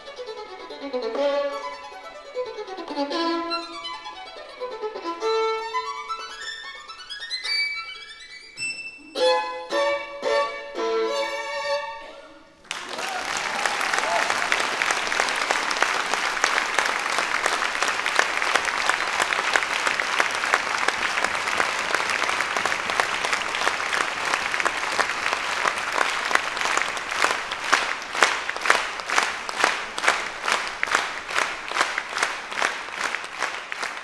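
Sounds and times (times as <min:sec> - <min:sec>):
audience applauding: 0:12.7 - 0:34.0
rhythmic unison clapping: 0:12.7 - 0:34.0.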